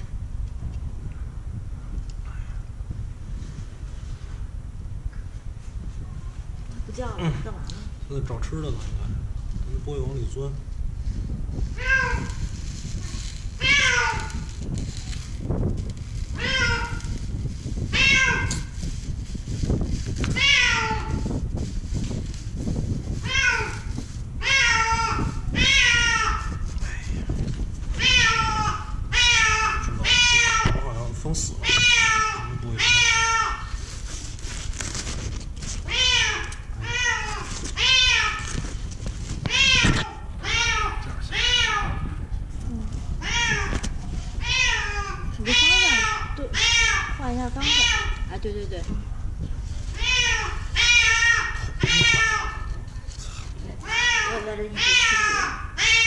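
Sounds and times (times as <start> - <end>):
steady low rumble: 0.0 - 56.0
cat meowing: 13.6 - 14.5, 16.4 - 17.0, 17.9 - 18.8, 20.4 - 21.2, 23.2 - 26.6, 28.0 - 30.8, 31.6 - 33.6, 35.9 - 38.5, 39.5 - 42.1, 43.2 - 43.8, 44.4 - 48.3, 49.9 - 52.8, 53.8 - 56.0.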